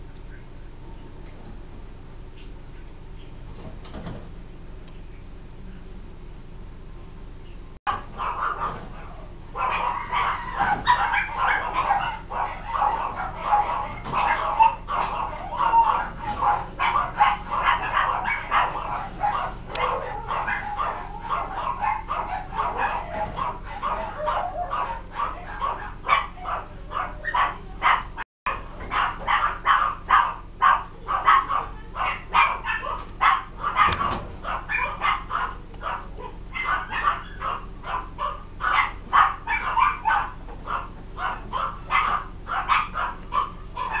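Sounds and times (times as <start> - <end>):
faint high-pitched chirps: 0.0 - 1.2, 1.9 - 2.2, 5.8 - 6.4
animal cries and yips: 0.9 - 1.1, 1.9 - 2.1, 7.9 - 44.0.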